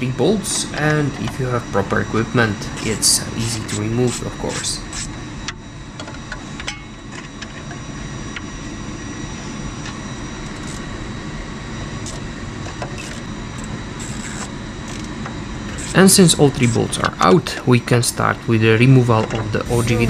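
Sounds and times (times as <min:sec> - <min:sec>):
low background rumble: 0:19.2 - 0:20.0.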